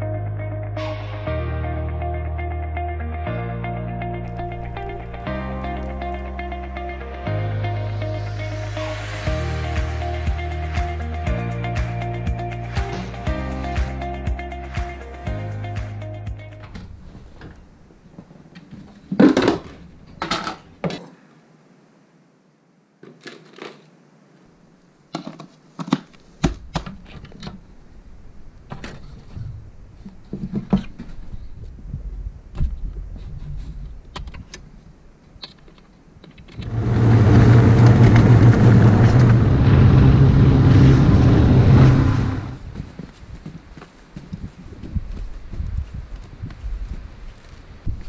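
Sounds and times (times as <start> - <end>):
snowmobile engine running: 36.6 - 42.7.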